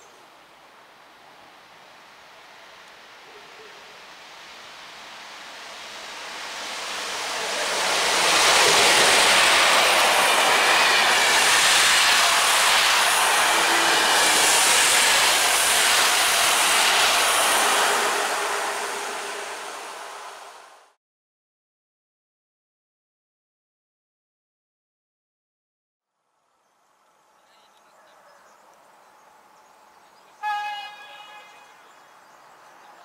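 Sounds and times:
train wheels on rails: 4.2s - 20.9s.

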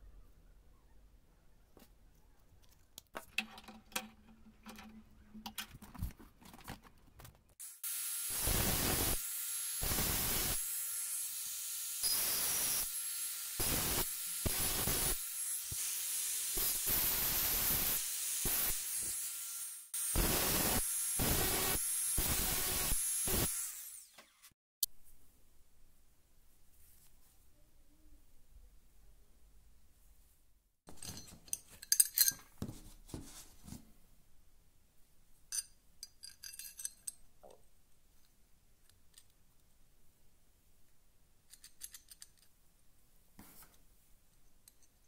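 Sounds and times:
angle grinder cutting steel rod: 7.6s - 24.4s
small metal parts clicking: 30.9s - 32.5s, 35.5s - 37.3s, 41.4s - 42.6s.

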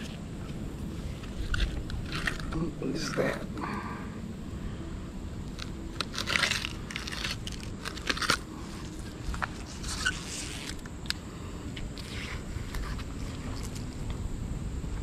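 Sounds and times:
mud crunching and crackling: 0.0s - 3.4s, 5.5s - 10.9s.

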